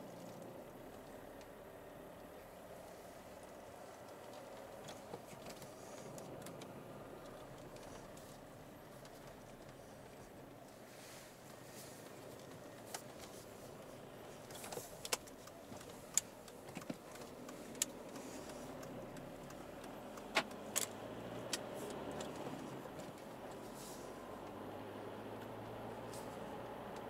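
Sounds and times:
car engine running in cabin: 0.0s - 27.0s
sharp clicks and light rattles: 3.3s - 10.8s, 11.4s - 23.6s.

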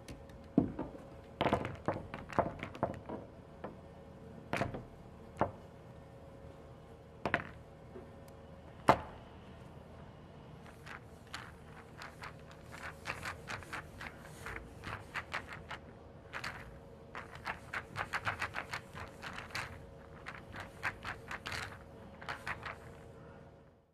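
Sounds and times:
pool balls clacking: 0.0s - 3.9s, 10.7s - 23.0s
faint steady hum: 0.0s - 23.9s.

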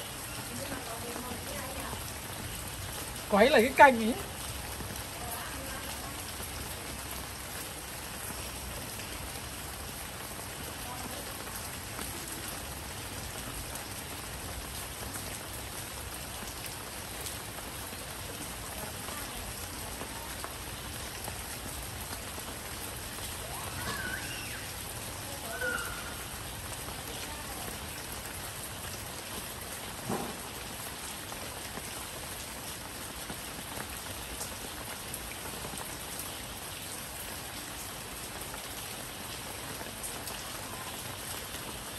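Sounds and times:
steady rain: 0.0s - 41.9s.

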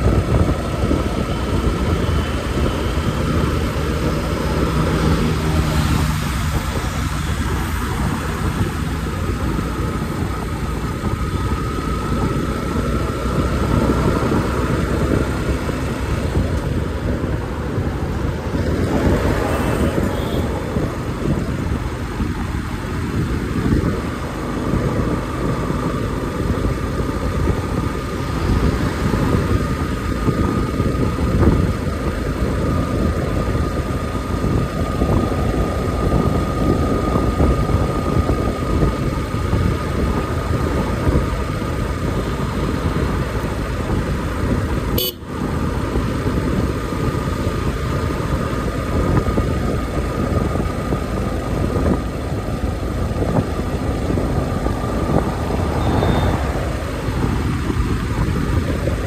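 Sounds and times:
motorcycle engine running: 0.0s - 59.0s
road rumble: 0.0s - 59.0s
wind on microphone: 0.0s - 59.0s
faint whistle-like tone: 55.8s - 56.6s.

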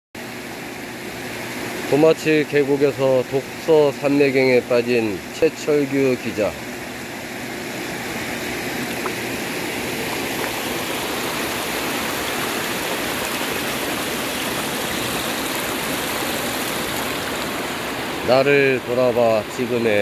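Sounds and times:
stream flowing over rocks: 7.7s - 20.0s.

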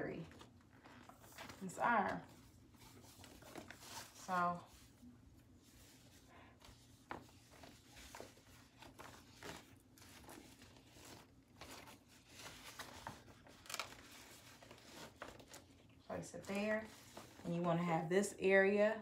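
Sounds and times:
soft rustles: 0.0s - 18.1s.

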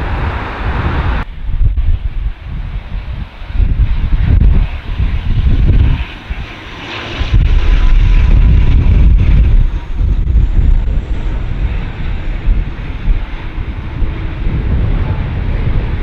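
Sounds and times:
jet engines rushing with whine: 0.0s - 16.0s
wind gusts on microphone: 0.0s - 16.0s.

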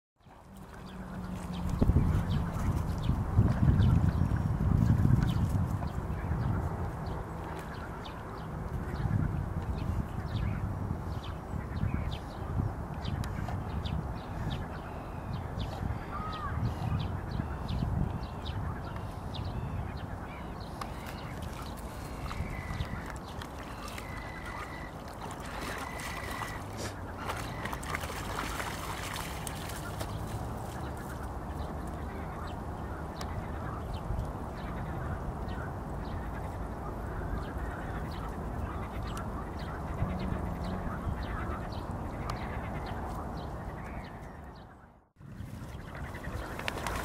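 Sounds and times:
steady outdoor noise: 0.2s - 47.0s
dogs splashing through water: 20.8s - 32.3s, 45.7s - 47.0s.

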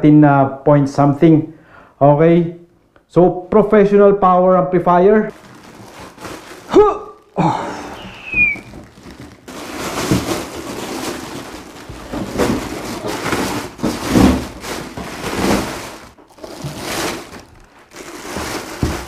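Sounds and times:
plastic wrapping crinkling: 5.3s - 19.0s.

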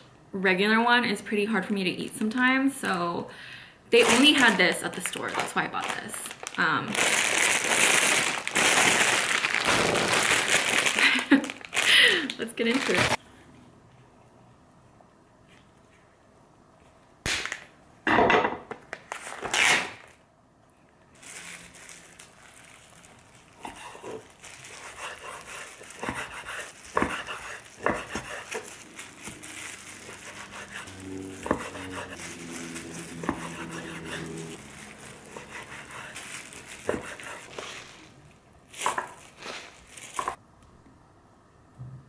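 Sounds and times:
plastic film crinkling rips: 4.0s - 13.2s, 17.3s - 17.7s, 18.9s - 20.2s, 21.1s - 40.4s
knife slicing meat: 23.7s - 28.7s, 30.0s - 32.2s, 33.2s - 34.5s.

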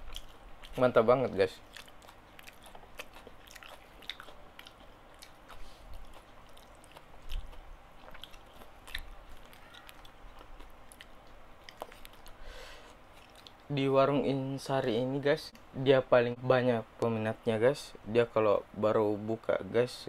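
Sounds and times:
person chewing: 0.0s - 13.7s.

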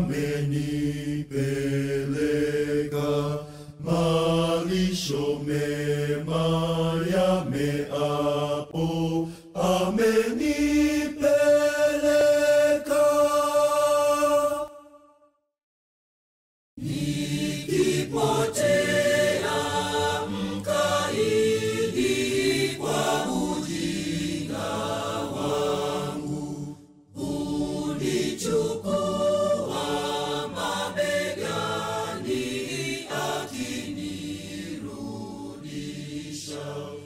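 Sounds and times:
choir chanting in harmony: 0.0s - 15.2s, 16.8s - 37.0s.

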